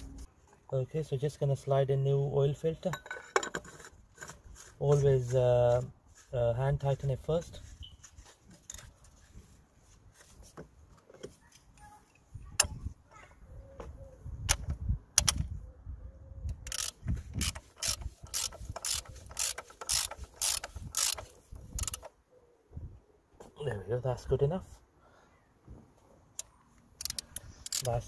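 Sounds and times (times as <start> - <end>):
socket ratchet clicking: 16.5 - 22.1, 27.0 - 28.0.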